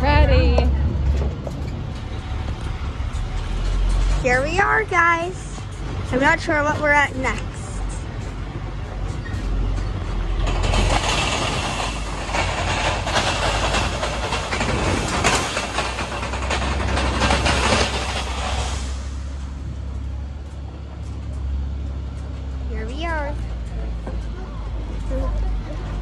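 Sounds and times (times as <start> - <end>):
low engine drone: 0.0 - 26.0
loud rattling rush: 9.8 - 20.5.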